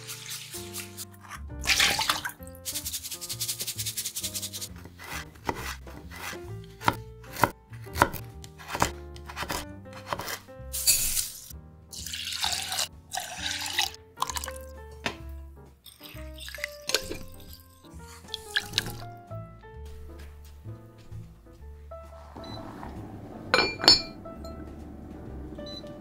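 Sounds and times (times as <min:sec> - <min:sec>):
water poured into pot: 0:00.0 - 0:03.2, 0:10.8 - 0:14.6, 0:15.8 - 0:17.7, 0:18.3 - 0:19.0
background music: 0:00.0 - 0:26.0
knife cutting on wooden board: 0:04.5 - 0:11.4
water dripping from colander: 0:15.9 - 0:17.6.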